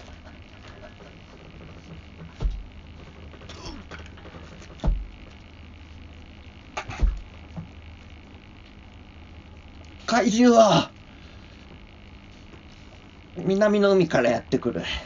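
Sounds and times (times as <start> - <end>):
low steady hum: 0.0 - 15.0
dull heavy thumps: 1.0 - 5.4, 6.8 - 7.8.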